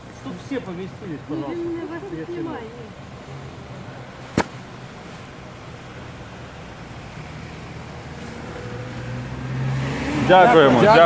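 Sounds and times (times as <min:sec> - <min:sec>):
street noise: 0:00.0 - 0:11.0
vehicle engine hum: 0:00.0 - 0:11.0.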